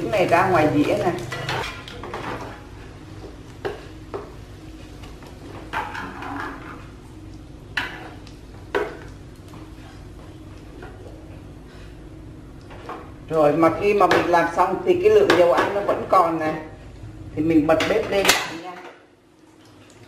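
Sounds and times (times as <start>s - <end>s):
oil sizzling faintly: 0.0s - 18.4s
utensils clacking against frying pan: 0.8s - 2.6s, 5.6s - 6.8s.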